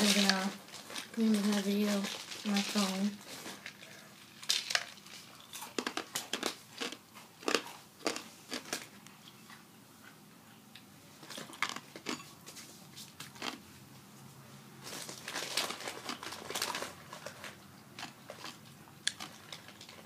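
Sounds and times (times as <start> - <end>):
snack wrapper crinkling: 0.0 - 9.0, 14.8 - 20.0.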